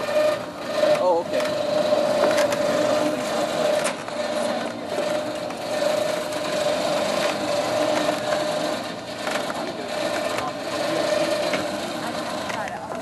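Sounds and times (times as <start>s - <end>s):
steady hum: 0.0s - 13.0s
wheels rumbling on wooden planks: 0.0s - 13.0s.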